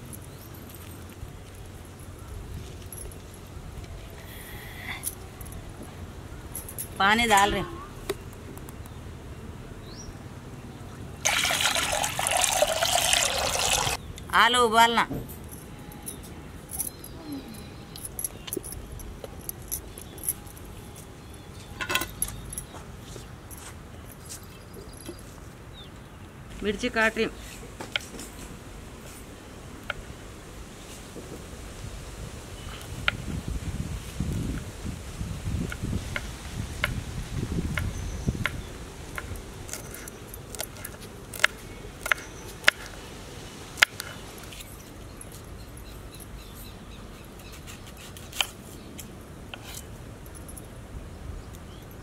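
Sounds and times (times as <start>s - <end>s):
light clicks and clinks: 15.3s - 25.3s.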